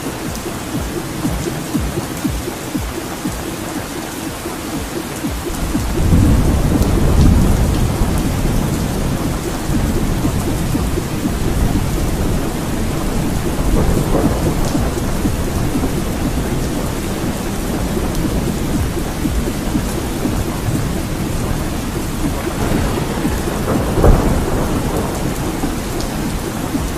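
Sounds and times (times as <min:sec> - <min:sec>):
heavy rain: 0:00.0 - 0:26.9
rolling thunder: 0:05.5 - 0:26.9.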